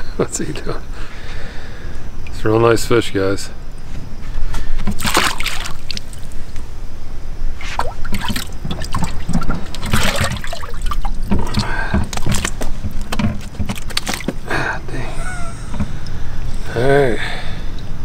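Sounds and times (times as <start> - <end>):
water splashing and dripping: 4.9 - 6.4, 7.6 - 14.4
knocks and thumps on boat: 8.1 - 14.4.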